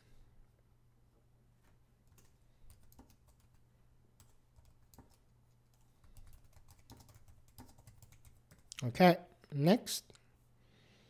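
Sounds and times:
faint keyboard typing: 2.0 - 8.8.

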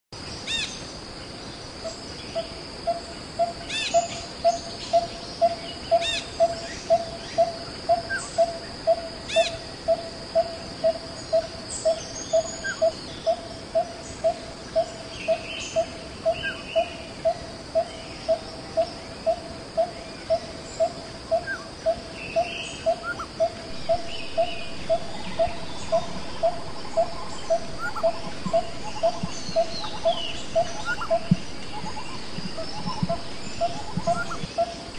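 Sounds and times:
high insect drone: 0.2 - 34.9.

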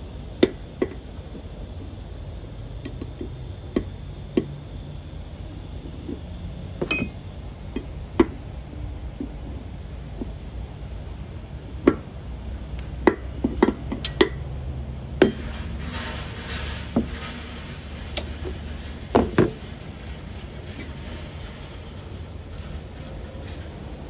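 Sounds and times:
spanners clinking on metal fittings: 6.8 - 7.2, 13.6 - 14.4, 15.2 - 19.6.

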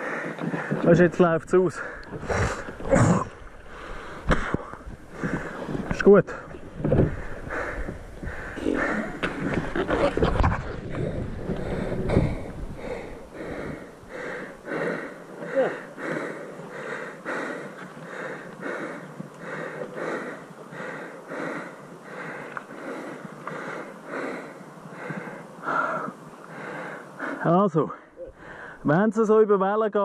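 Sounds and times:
person breathing hard: 0.0 - 0.8, 1.8 - 2.8, 3.6 - 10.0, 10.9 - 28.8
wind buffeting microphone: 0.2 - 15.4.

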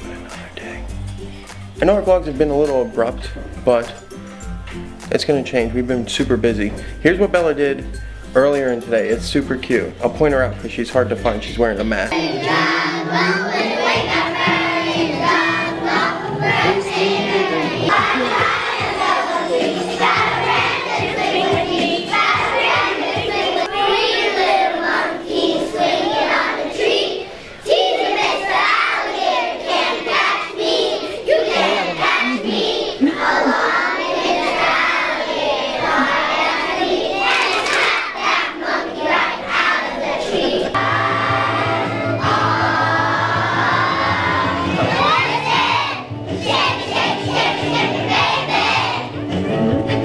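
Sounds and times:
musical accompaniment: 0.0 - 39.6, 40.7 - 50.0
children singing together: 12.1 - 50.0.

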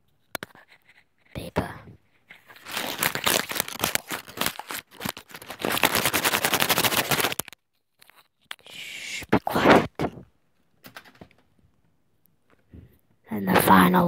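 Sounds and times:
paper crumpling: 2.1 - 8.6.

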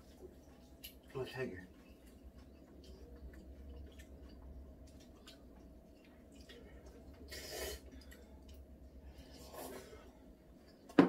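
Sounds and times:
low steady hum: 0.0 - 11.0
wet mouth eating sounds: 1.8 - 8.7
noodle slurp: 7.2 - 7.9.

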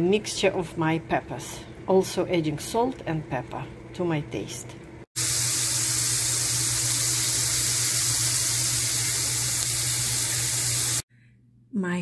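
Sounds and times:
peppers sizzling in a pan: 5.2 - 11.0.

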